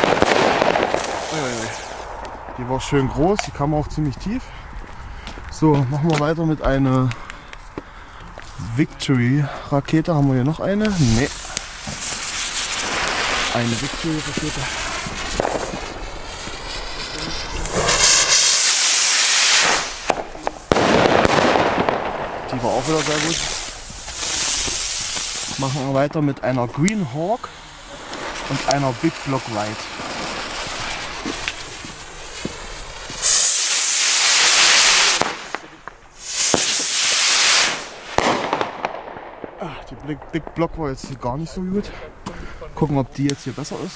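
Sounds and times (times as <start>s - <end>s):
rocket launching with rushing hiss: 0.0s - 3.0s, 10.9s - 26.0s, 27.3s - 39.6s
sharp crack: 0.0s - 5.4s, 10.0s - 41.6s
firework fuse sizzling: 0.0s - 5.6s, 6.9s - 43.9s.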